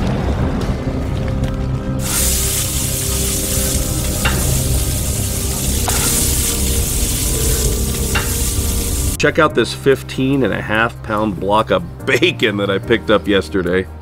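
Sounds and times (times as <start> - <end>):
food sizzling on a griddle: 2.0 - 9.2.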